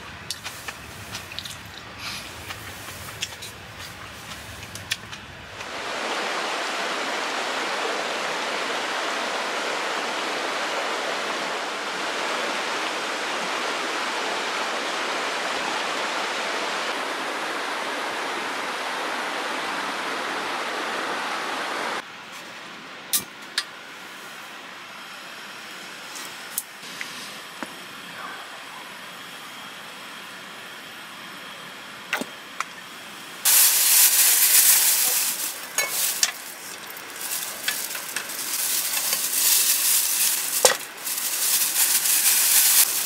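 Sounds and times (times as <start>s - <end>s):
stream rushing over rocks: 5.5s - 22.0s, 33.5s - 43.0s.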